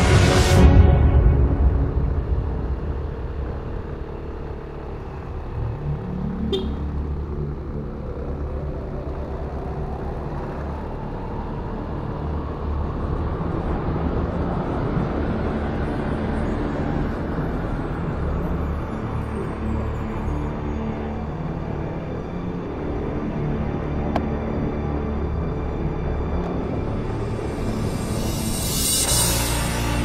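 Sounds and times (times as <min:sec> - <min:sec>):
road and wind noise: 0:00.0 - 0:30.0
motorcycle engine running: 0:03.0 - 0:11.2.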